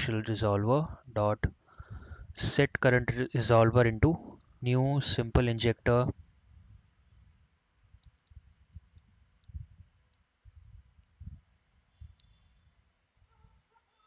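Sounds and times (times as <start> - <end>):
computer keyboard typing: 8.0 - 8.4.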